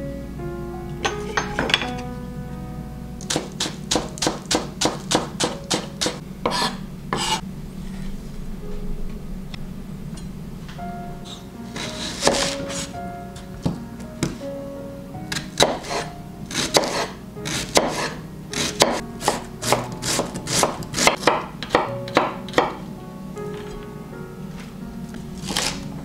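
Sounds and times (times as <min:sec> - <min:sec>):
soft background music: 0:00.0 - 0:26.0
knife chopping on cutting board: 0:03.3 - 0:07.4, 0:11.8 - 0:12.9, 0:15.3 - 0:22.8.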